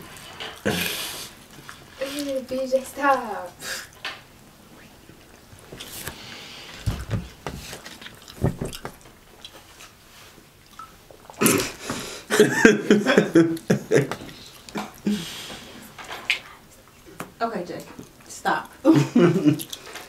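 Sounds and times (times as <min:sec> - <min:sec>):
mouth sounds: 0:00.6 - 0:01.3
chewing and crunching: 0:07.6 - 0:11.4, 0:17.8 - 0:18.8, 0:19.5 - 0:20.0
people laughing: 0:12.3 - 0:14.3, 0:18.9 - 0:19.6.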